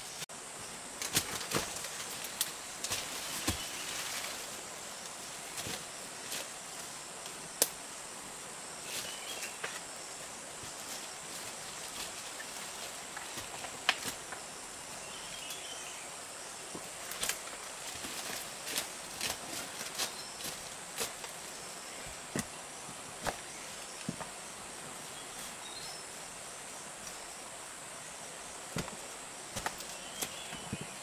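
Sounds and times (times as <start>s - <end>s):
high insect drone: 0.0s - 31.0s
twigs snapping: 17.1s - 17.5s, 28.8s - 30.4s.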